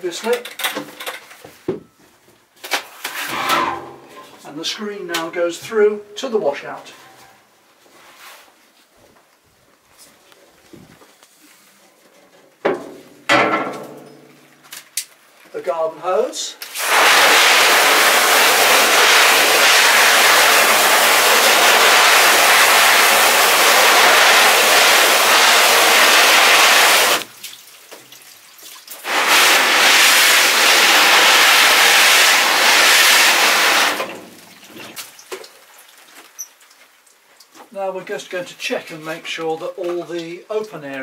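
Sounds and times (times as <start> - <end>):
hose nozzle spraying water on mesh: 16.6 - 27.6, 28.6 - 34.1.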